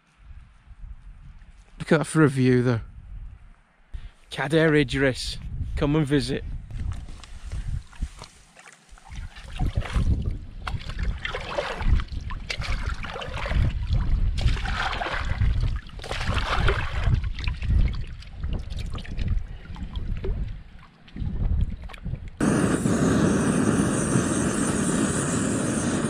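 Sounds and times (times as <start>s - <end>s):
water splashing around hand: 8.2s - 19.4s.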